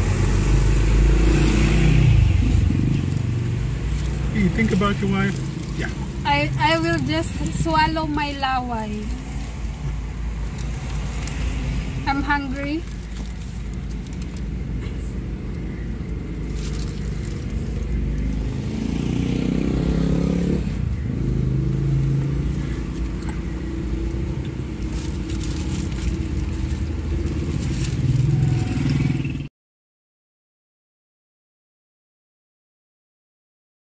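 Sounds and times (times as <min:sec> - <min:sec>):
car engine rumble inside cabin: 0:00.0 - 0:18.7, 0:20.5 - 0:29.4
paper wrapper crinkling: 0:03.9 - 0:06.2, 0:12.5 - 0:14.8, 0:15.4 - 0:18.4, 0:22.6 - 0:28.9.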